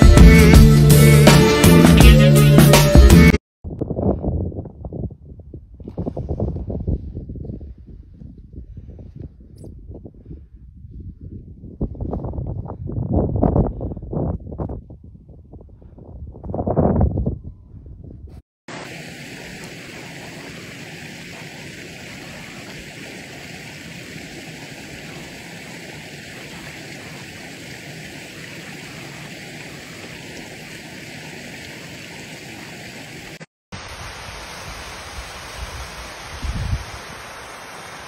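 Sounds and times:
rocky mountain stream rushing: 18.7s - 38.0s
waterfall cascading: 18.7s - 38.0s.

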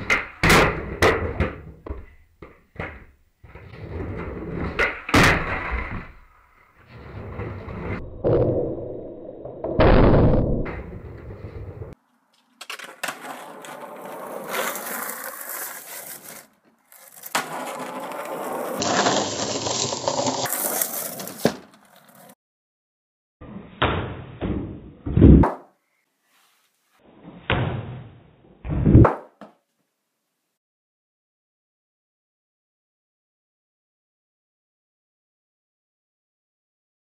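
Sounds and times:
skateboard landings clattering: 0.0s - 6.3s
skateboard wheels rolling on asphalt: 0.0s - 8.0s, 10.7s - 22.4s.

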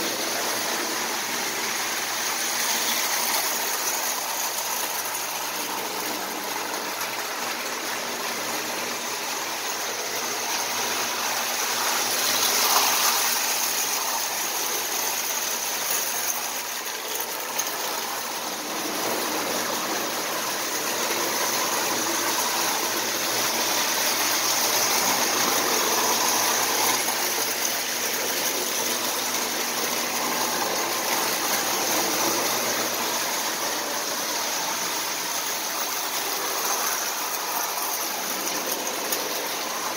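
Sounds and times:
toy train motor whirring: 0.0s - 39.9s.

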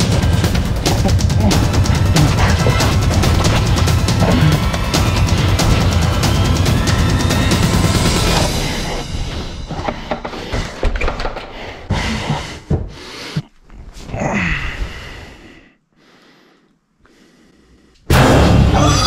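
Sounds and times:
loud burst of music: 0.0s - 8.8s, 18.1s - 19.0s
hard panting breaths: 7.9s - 13.6s, 14.4s - 18.1s
footsteps on wooden stairs: 8.2s - 13.6s.

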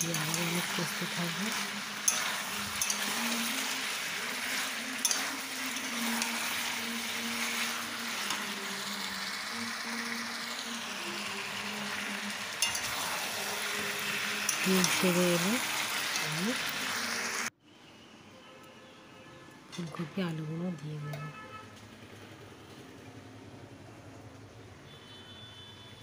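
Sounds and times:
chicken sizzling in hot oil: 0.0s - 17.5s.

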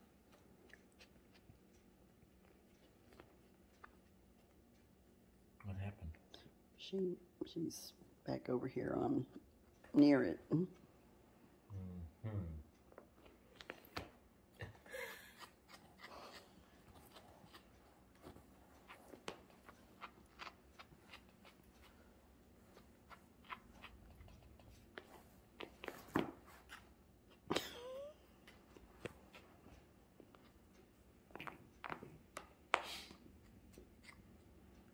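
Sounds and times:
cats scratching fabric pillow: 0.0s - 6.0s, 15.2s - 34.9s.

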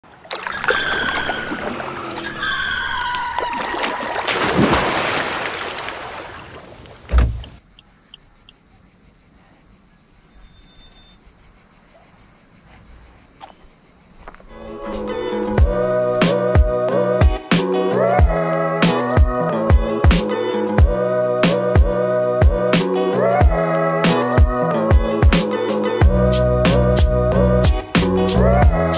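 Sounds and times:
cicadas buzzing: 0.3s - 18.1s.

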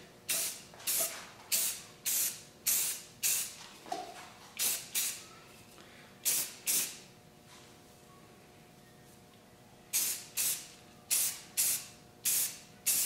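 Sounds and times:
aerosol spray can hissing: 10.0s - 13.0s.

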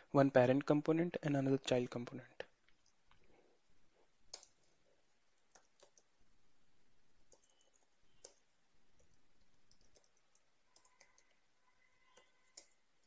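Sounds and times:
computer keys typing: 4.3s - 6.4s, 7.1s - 13.0s.

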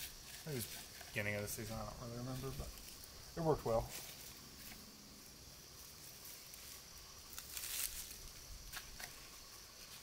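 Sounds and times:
insects chirring: 0.0s - 10.0s
strap rustling scrape: 7.4s - 8.2s.

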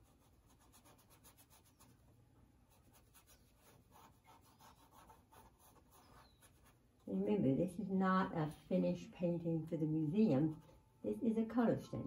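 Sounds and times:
paintbrush scratching on canvas: 0.0s - 9.1s.

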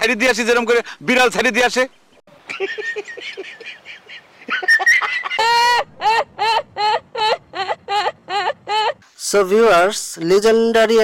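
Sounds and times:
person laughing: 2.4s - 9.0s.

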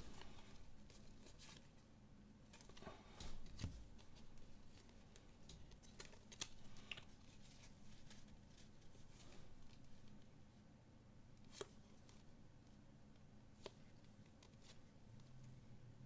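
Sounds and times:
trading cards rustling and clicking: 2.5s - 10.1s.

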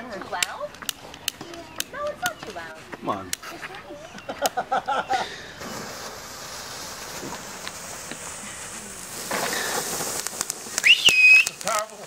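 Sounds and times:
sharp firework crackles: 3.4s - 12.0s
fountain fireworks hissing: 4.0s - 12.0s
shrill rising whistle: 10.8s - 11.6s.

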